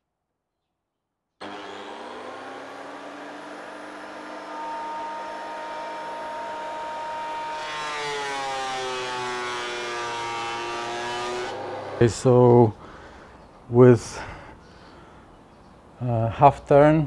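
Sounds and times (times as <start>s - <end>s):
thickness planer cutting wood: 1.4s - 12.4s.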